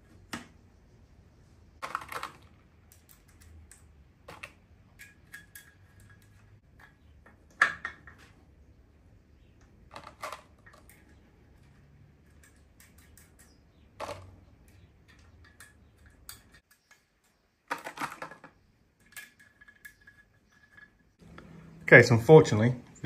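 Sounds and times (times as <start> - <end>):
metal nuts clinking and rattling: 4.3 - 8.2, 9.9 - 21.2.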